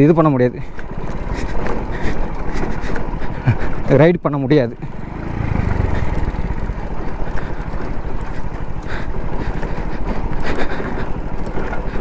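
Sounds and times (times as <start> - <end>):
motorcycle engine running: 0.0 - 12.0
wind buffeting microphone: 4.8 - 12.0.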